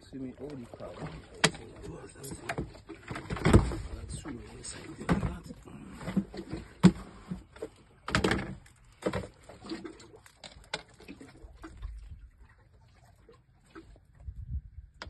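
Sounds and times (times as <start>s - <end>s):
fishing gear knocking and rustling: 1.0s - 4.4s, 5.0s - 11.3s.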